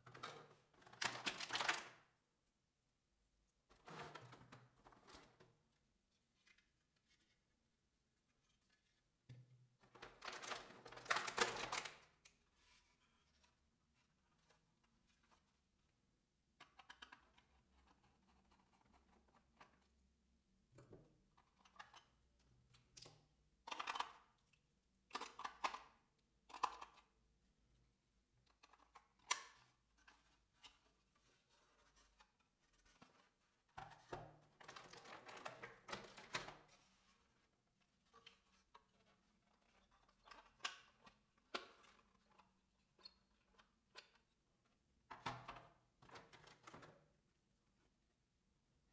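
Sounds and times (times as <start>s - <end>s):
plastic toy parts clicking: 23.6s - 24.2s, 25.1s - 25.9s, 26.5s - 27.1s.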